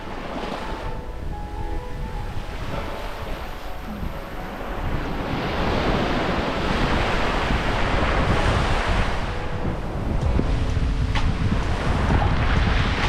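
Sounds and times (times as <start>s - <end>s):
sea waves washing onto shore: 0.0s - 13.0s
wind buffeting microphone: 0.0s - 13.0s.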